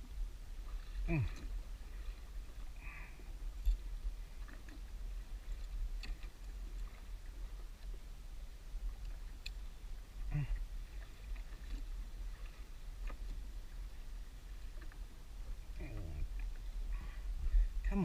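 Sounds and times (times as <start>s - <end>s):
wind rumble on microphone: 0.0s - 18.0s.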